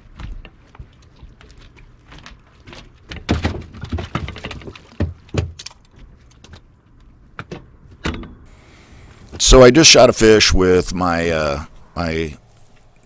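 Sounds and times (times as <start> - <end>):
knocks and thumps on boat deck: 0.0 - 6.1.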